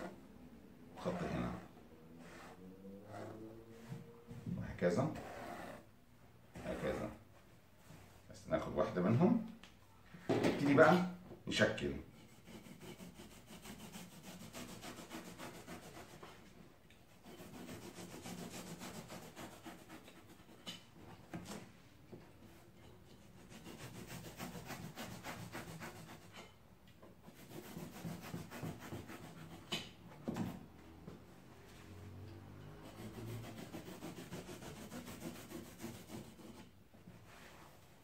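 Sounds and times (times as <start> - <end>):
knife cutting through foam: 17.2 - 20.5.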